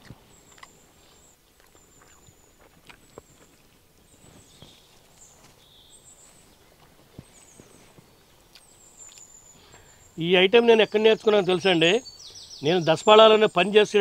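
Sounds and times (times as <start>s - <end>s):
faint high chirps: 0.0s - 14.0s
lower chirps: 4.1s - 14.0s.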